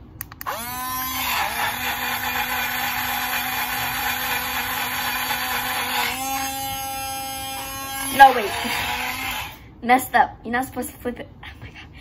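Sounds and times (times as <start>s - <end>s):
blender switch clicks: 0.2s - 0.7s
small blender motor whining: 0.4s - 9.7s.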